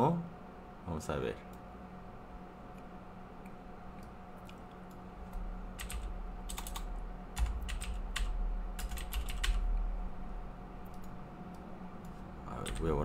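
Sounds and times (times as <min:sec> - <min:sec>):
typing on a keyboard: 0:05.8 - 0:09.7, 0:12.5 - 0:13.0.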